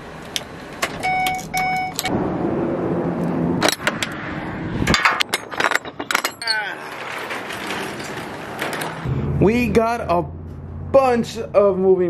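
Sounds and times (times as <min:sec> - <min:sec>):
dashboard warning chime beeping: 0:01.0 - 0:02.1.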